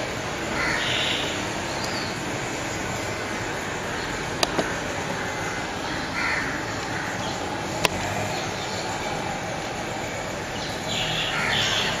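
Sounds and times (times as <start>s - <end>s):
harsh bird calls: 0.0s - 12.0s
steady background noise: 0.0s - 12.0s.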